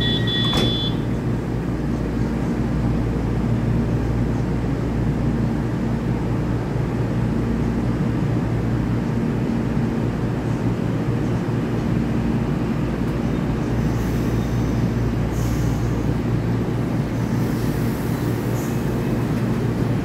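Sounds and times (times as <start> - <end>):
door-closing chime: 0.0 - 1.0
train doors shutting knock: 0.0 - 1.3
train humming and rumbling: 0.0 - 20.0.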